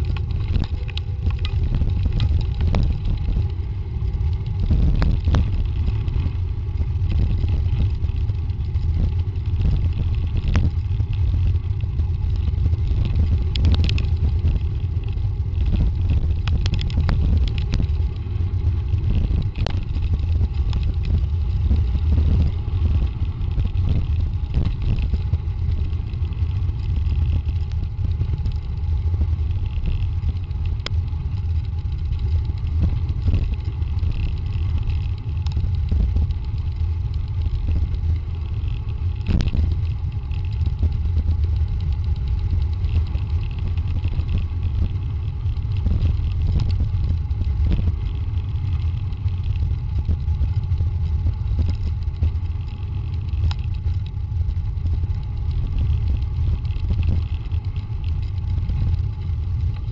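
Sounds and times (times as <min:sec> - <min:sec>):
bike clicks and rattles: 0:00.0 - 0:59.9
wind and trail vibration rumble: 0:00.0 - 0:59.9.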